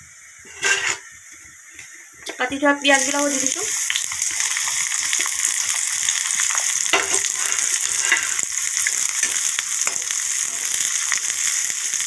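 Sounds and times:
onions sizzling in hot oil: 0.0 - 12.0
spatula scraping a pan: 0.5 - 1.1, 6.9 - 11.0.

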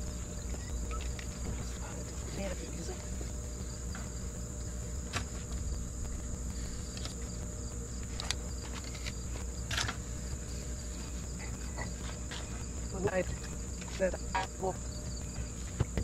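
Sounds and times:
insect chirring: 0.0 - 16.0
low steady hum: 0.0 - 16.0.

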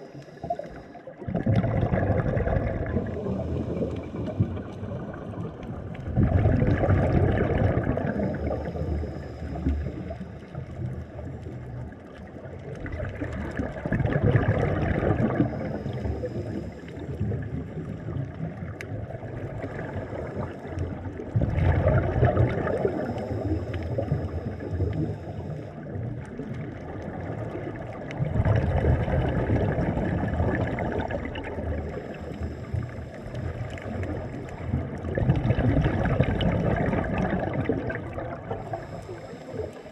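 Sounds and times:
regulator inhaling: 0.0 - 1.1, 31.9 - 34.8, 38.5 - 39.9
exhaled bubbles underwater: 0.0 - 39.9.

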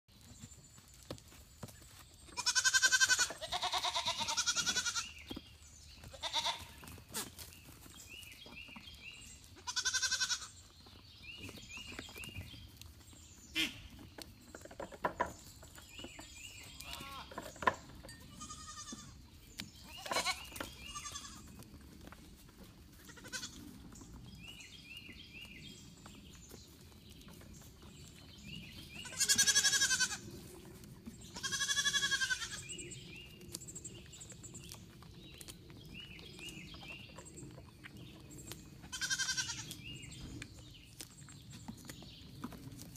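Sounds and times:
goat kids bleating: 2.4 - 5.2, 6.1 - 7.4, 9.5 - 10.6, 16.7 - 17.4, 18.2 - 19.2, 19.8 - 21.5, 23.0 - 23.6, 29.0 - 30.3, 31.3 - 32.7, 38.8 - 39.8.

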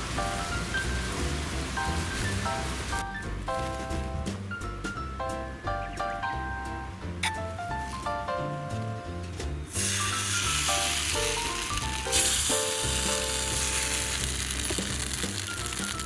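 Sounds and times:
background music: 0.0 - 16.0
batter sizzling in hot pan: 9.7 - 16.0.

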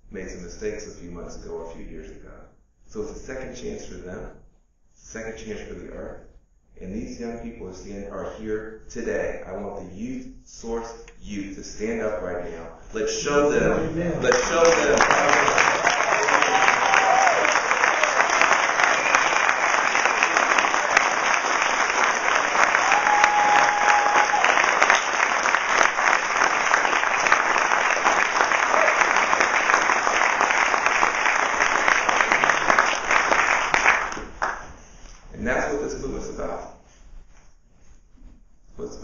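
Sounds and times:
audience applauding: 14.2 - 34.7.

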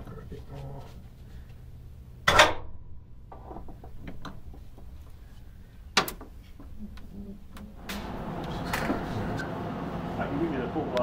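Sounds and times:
steady noise: 6.7 - 11.0.

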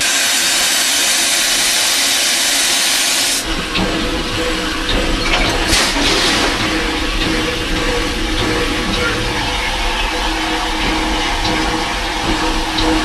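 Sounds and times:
steam hissing: 0.0 - 13.0
low rumble with knocks: 3.4 - 13.0.

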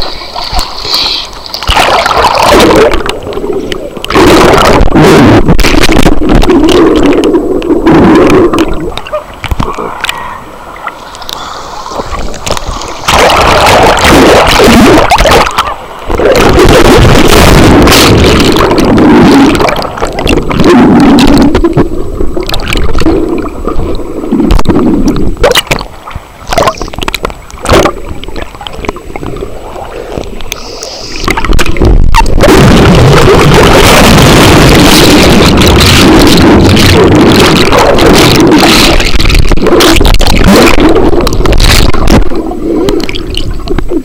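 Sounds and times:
water sloshing and splashing: 0.0 - 10.2, 10.8 - 44.0
underwater rumble: 0.0 - 44.0.

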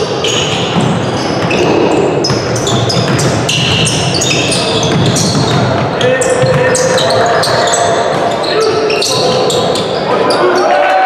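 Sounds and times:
ball bouncing or kicked: 0.6 - 7.0.

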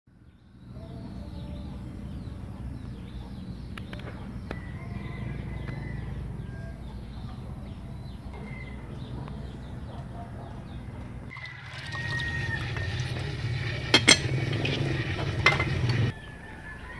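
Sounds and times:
small birds chirping: 0.1 - 11.4.

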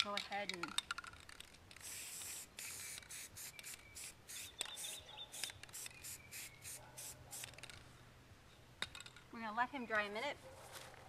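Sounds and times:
aerosol spray can hissing: 1.8 - 7.6.

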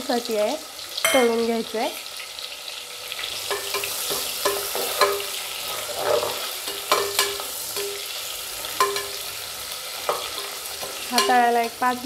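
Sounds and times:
onions sizzling in hot oil: 0.0 - 12.0
spatula scraping metal pot: 3.4 - 9.3.

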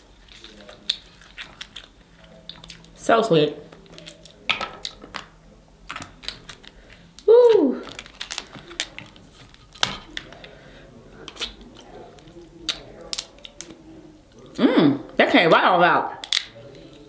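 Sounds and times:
chewing and mouth sounds: 0.0 - 3.0
crab shells cracking: 0.0 - 3.0, 3.6 - 14.6, 16.2 - 17.0
person humming: 7.2 - 7.9.

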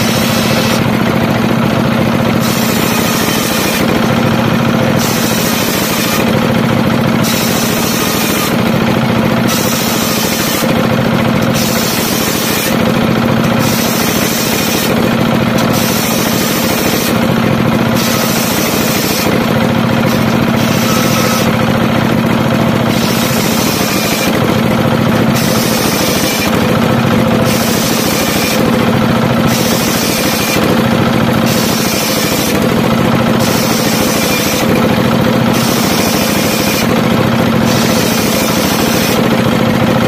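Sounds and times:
saw cutting hiss: 0.0 - 39.5
engine and saw blade droning: 0.0 - 40.0.

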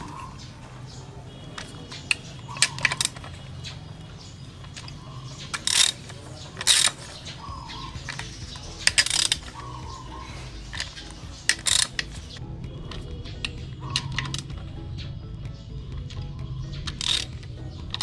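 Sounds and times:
ratchet wrench clicking: 1.6 - 3.3, 4.6 - 12.4, 16.8 - 18.0.

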